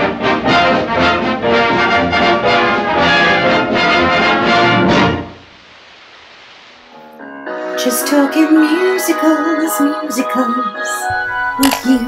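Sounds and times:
dance-band music with brass: 0.0s - 5.5s
film soundtrack hiss: 0.0s - 12.0s.

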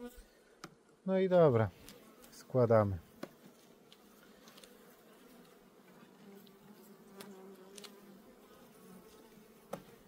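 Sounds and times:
bees buzzing: 1.8s - 10.0s
hive tool clicking on wood: 7.2s - 8.0s, 9.7s - 10.0s.

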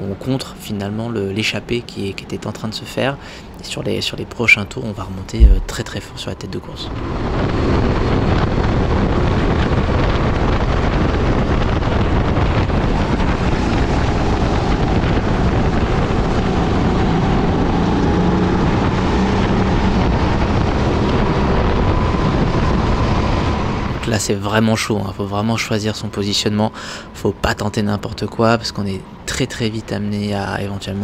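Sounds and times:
wind buffeting microphone: 5.3s - 6.2s, 6.9s - 24.0s.

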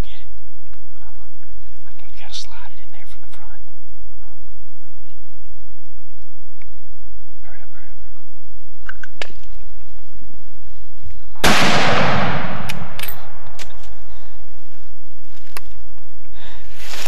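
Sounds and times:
rifle shot echoing: 11.3s - 14.6s.

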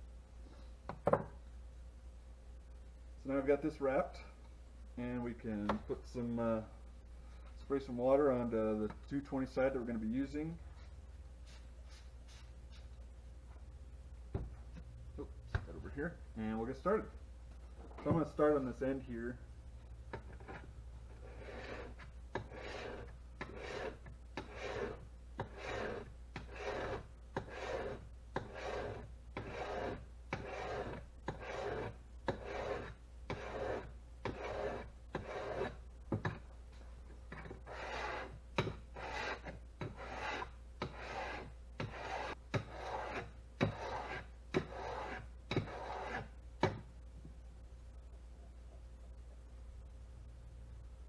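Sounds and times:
sharpening stone rasping on blade: 21.2s - 35.8s, 37.6s - 46.3s.

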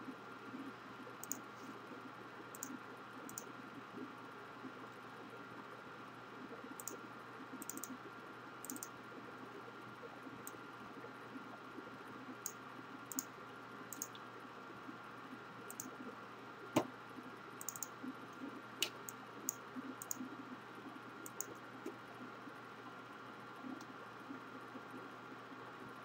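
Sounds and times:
faint computer clicks: 1.2s - 1.5s, 2.5s - 3.5s, 6.8s - 9.0s, 12.3s - 13.3s, 13.9s - 14.3s, 15.7s - 16.0s, 17.6s - 20.3s, 21.2s - 22.0s.

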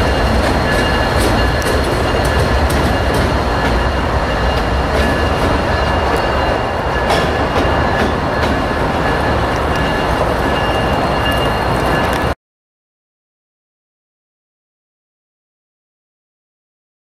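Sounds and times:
rail joint clicks: 0.0s - 12.4s
train wheels rumbling on rails: 0.0s - 12.4s.

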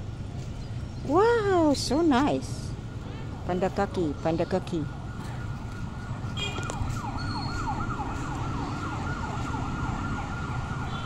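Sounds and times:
low rumble of traffic: 0.0s - 11.0s
siren in quick falling sweeps: 5.0s - 11.0s.

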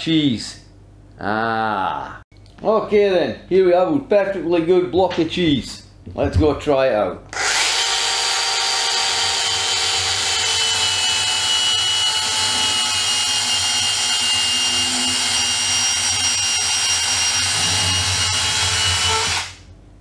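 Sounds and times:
electric saw whining through cheese: 7.3s - 19.6s.

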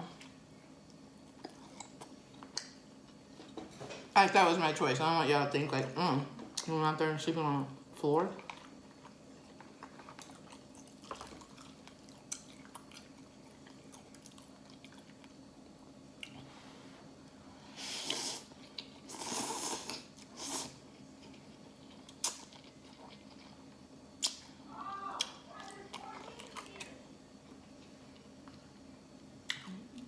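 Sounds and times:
quiet chewing: 0.2s - 3.6s, 8.4s - 16.5s, 18.1s - 24.4s, 25.2s - 30.0s
noodle slurps: 19.1s - 20.8s.

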